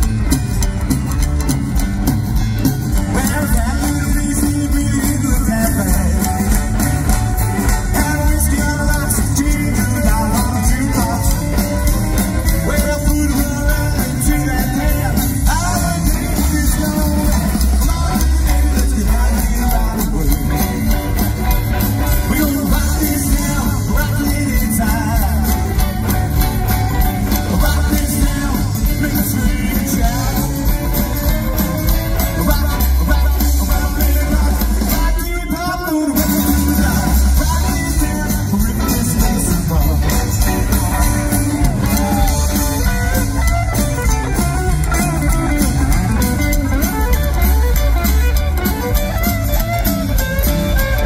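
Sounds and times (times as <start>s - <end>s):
upright double bass: 0.0s - 35.2s, 36.2s - 51.0s
drums: 0.0s - 51.0s
electric guitar: 0.0s - 51.0s
lead vocal singing: 3.0s - 6.8s, 7.6s - 21.0s, 22.1s - 26.2s, 27.0s - 31.2s, 31.8s - 43.4s.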